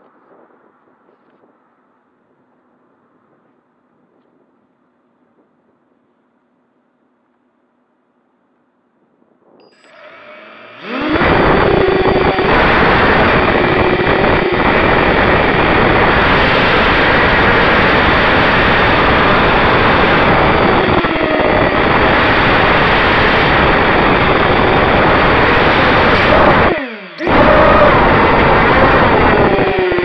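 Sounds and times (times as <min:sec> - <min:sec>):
propeller and wind rush: 0:09.0 - 0:30.0
drone motor whine: 0:09.6 - 0:30.0.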